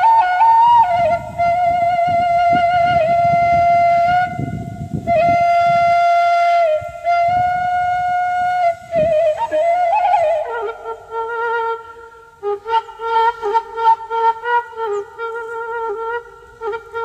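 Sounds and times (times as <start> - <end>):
flute-like wind instrument music: 0.0 - 17.0.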